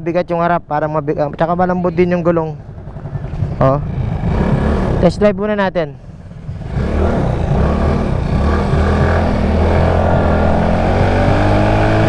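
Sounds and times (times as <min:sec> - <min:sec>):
scooter engine accelerating: 0:02.7 - 0:05.2, 0:06.2 - 0:12.0.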